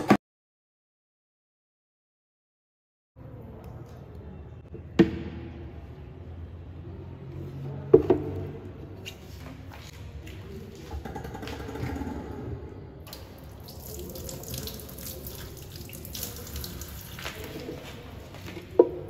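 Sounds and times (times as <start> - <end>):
thick batter squelching: 13.8 - 18.4.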